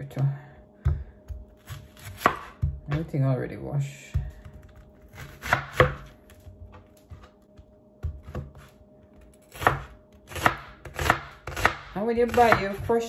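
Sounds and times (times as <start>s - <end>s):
knife cutting onion on board: 0.9s - 3.1s, 4.7s - 6.1s, 8.0s - 8.7s, 9.4s - 13.0s.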